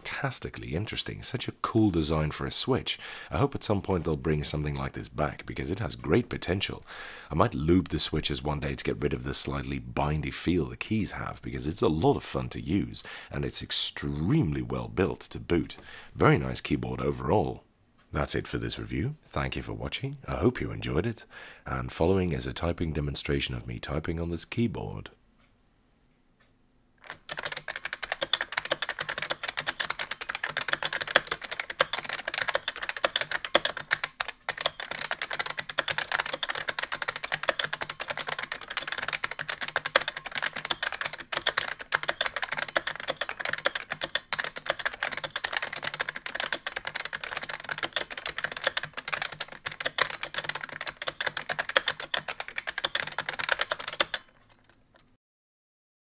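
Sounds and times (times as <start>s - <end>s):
fast clicky keyboard typing: 27.0s - 55.1s.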